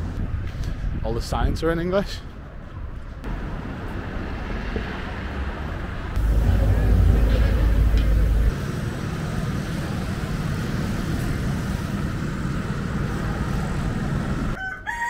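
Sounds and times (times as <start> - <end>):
street noise: 0.0 - 15.0
aircraft engine roar: 3.3 - 14.6
rooster crowing: 14.6 - 15.0.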